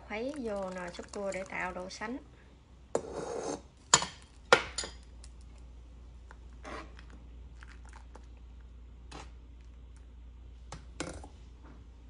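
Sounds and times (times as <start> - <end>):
liquid pouring into soup: 7.4 - 8.6.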